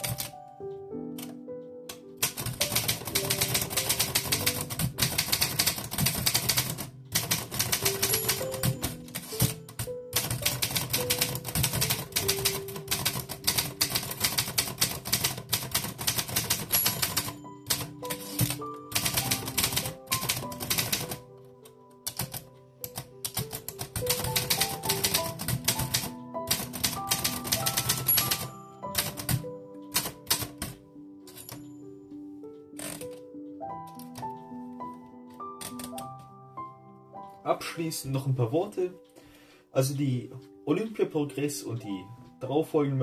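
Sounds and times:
manual typewriter typing: 0:00.0 - 0:00.4, 0:01.1 - 0:21.3, 0:22.0 - 0:31.7, 0:32.7 - 0:34.4, 0:35.4 - 0:36.1
background music with held notes: 0:00.0 - 0:43.0.

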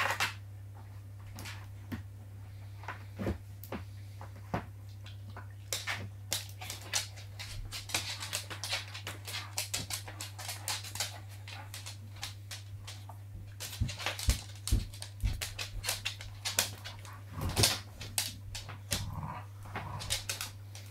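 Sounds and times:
dogs scuffling and clicking: 0:04.3 - 0:20.9.

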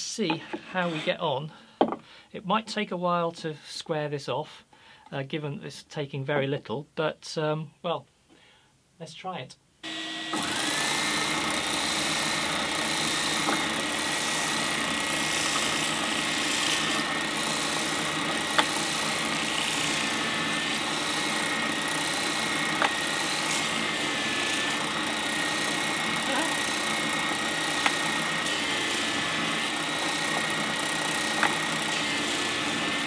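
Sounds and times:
spindle sander motor whine: 0:09.8 - 0:33.0.

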